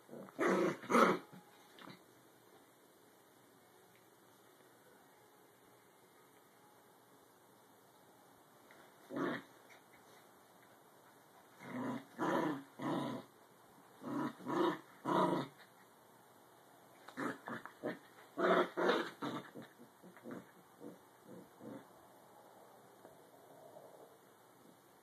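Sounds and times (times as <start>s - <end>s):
small dogs growling: 0.0s - 2.0s, 9.1s - 9.8s, 11.6s - 13.3s, 14.0s - 15.7s, 17.1s - 21.9s.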